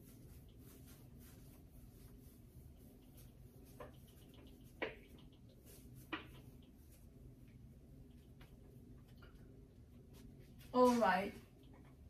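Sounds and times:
low room hum: 0.0s - 12.0s
eraser scuffing whiteboard: 10.1s - 11.4s.

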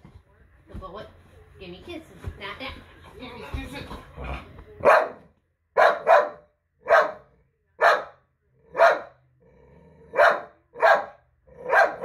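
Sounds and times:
dog barking: 4.8s - 9.2s, 10.1s - 12.0s.

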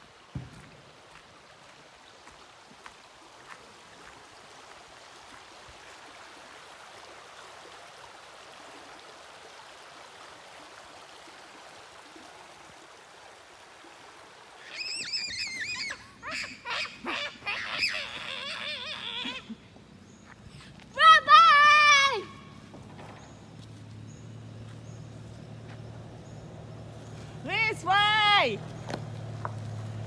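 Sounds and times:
creek water rushing: 0.0s - 30.0s
bird calling high notes: 14.6s - 19.6s.

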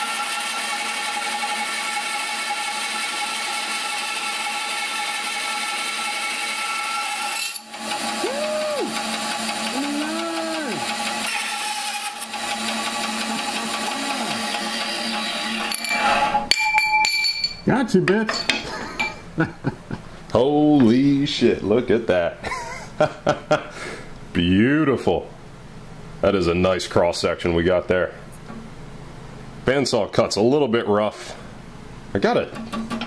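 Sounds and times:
bandsaw cutting: 0.0s - 16.5s
short whining tones: 7.0s - 12.3s, 13.6s - 16.5s.

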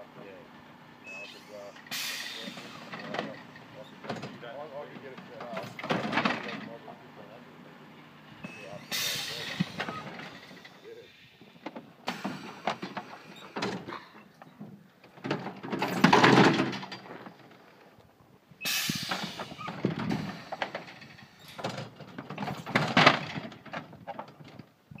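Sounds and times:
metal gates clanking shut: 1.1s - 6.9s, 8.4s - 11.1s, 12.0s - 17.2s, 18.6s - 24.4s
hiss of air: 1.9s - 2.9s, 8.8s - 11.5s, 18.7s - 21.4s.

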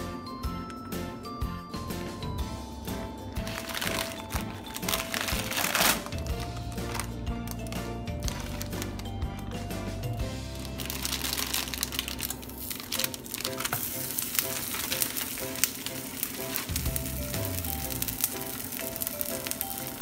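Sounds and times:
background music: 0.0s - 20.0s
plastic film crinkling: 3.3s - 9.5s, 10.5s - 20.0s
dough sizzling in frying pan: 10.6s - 20.0s.

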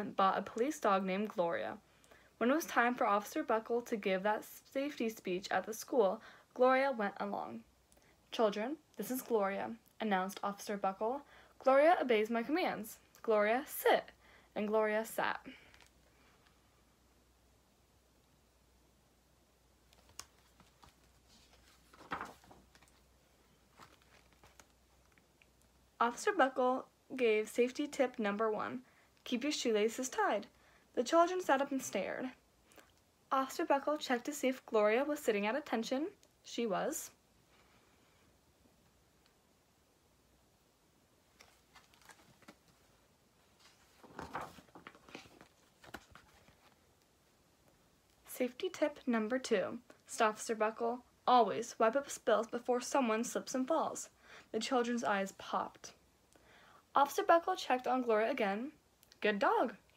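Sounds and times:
paper rustle of page: 19.9s - 23.1s, 23.7s - 25.2s, 41.3s - 46.8s.

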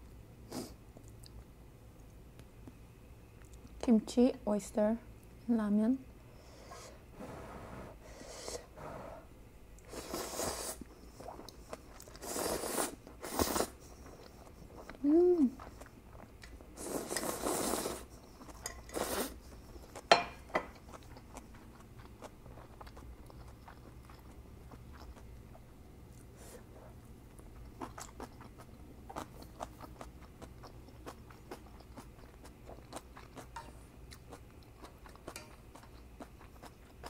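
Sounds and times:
noodles slurped: 9.9s - 13.8s, 16.8s - 19.4s
chewing: 10.8s - 37.0s
person humming: 15.0s - 15.6s.

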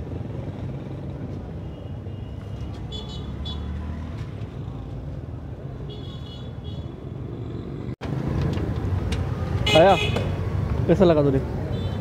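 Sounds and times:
road traffic: 0.0s - 12.0s
motor vehicle rumble: 6.8s - 11.7s.

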